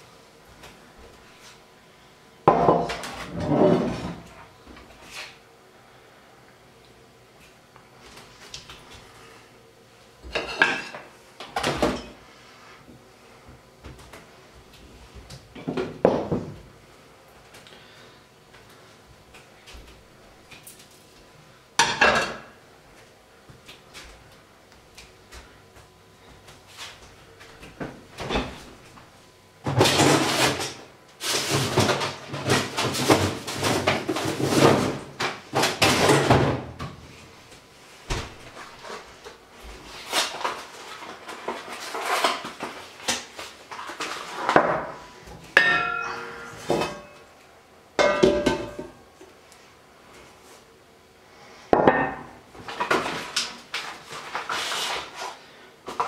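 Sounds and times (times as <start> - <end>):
metal cookware clattering: 45.6 - 47.2, 48.0 - 48.9
ringing metal tone: 45.6 - 47.2.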